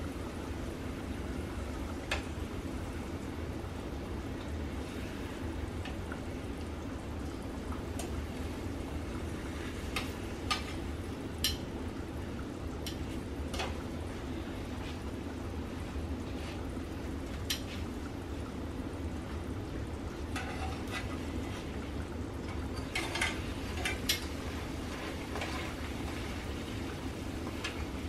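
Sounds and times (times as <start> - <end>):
tortilla sizzling in oil: 19.5 - 28.0.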